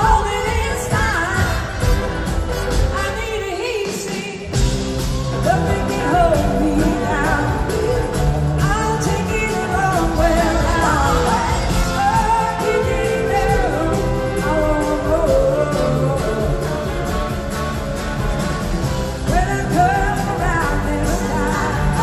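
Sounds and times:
live blues-rock band: 0.0s - 22.0s
horn section: 0.4s - 3.9s.

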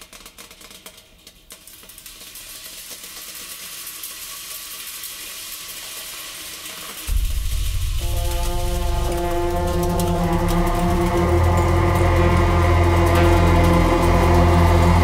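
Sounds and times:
crackling hiss: 0.0s - 15.0s
loud deep bass tone: 7.1s - 15.0s.

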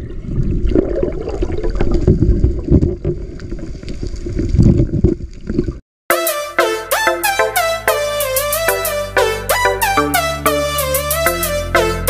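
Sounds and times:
underwater rumble of moving water: 0.0s - 5.8s.

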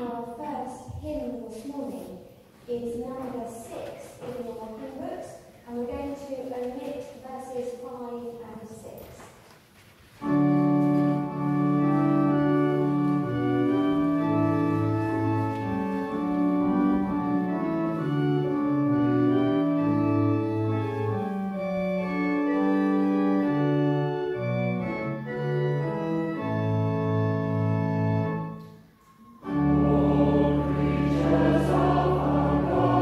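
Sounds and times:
church organ playing hymn: 10.0s - 33.0s.

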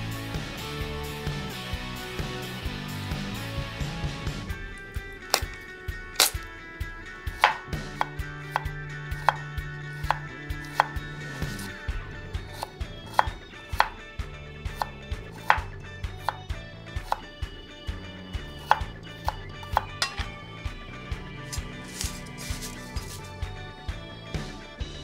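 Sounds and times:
knife chopping on wooden board: 5.3s - 5.6s, 6.2s - 6.5s, 7.4s - 11.8s, 12.4s - 14.0s, 14.7s - 16.4s, 17.0s - 17.3s, 18.6s - 20.4s, 21.5s - 23.4s.

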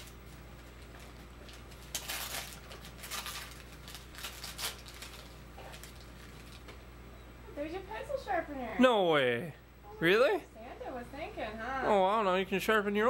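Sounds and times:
wrapping paper tearing and crinkling: 0.0s - 6.7s
faint low hum: 0.0s - 13.0s.

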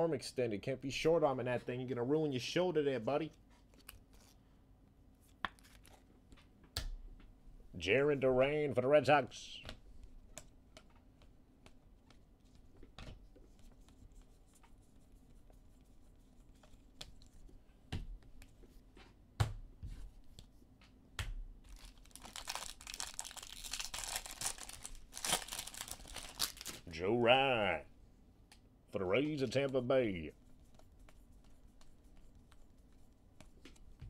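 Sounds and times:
foil wrapper crinkling torn open: 21.7s - 26.8s.

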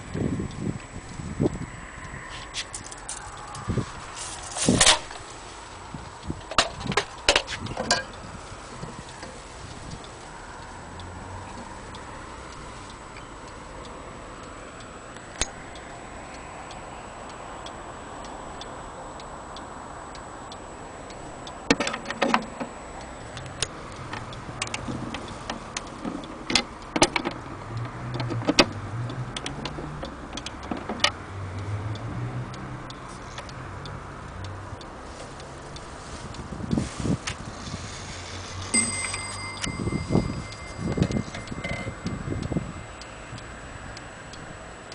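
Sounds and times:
wall clock ticking: 5.9s - 36.8s, 38.4s - 44.9s.

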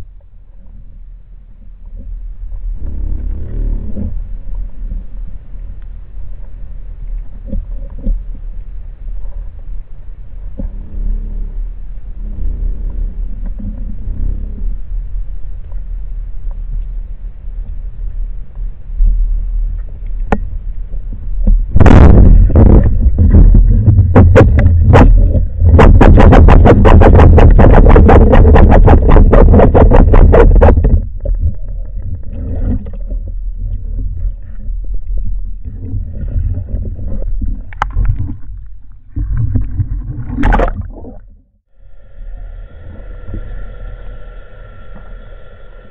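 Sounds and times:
underwater water rumble: 0.0s - 45.9s.

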